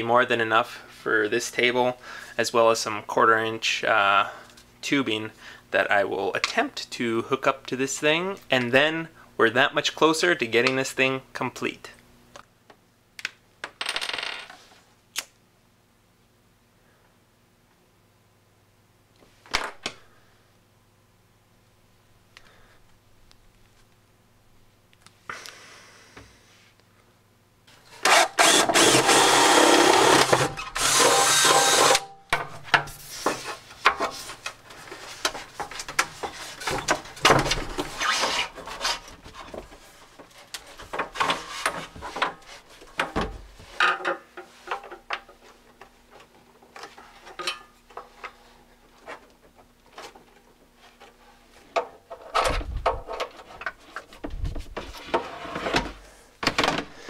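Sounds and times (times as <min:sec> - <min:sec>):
plastic and tubing handling noises: 0:32.6 - 0:57.0.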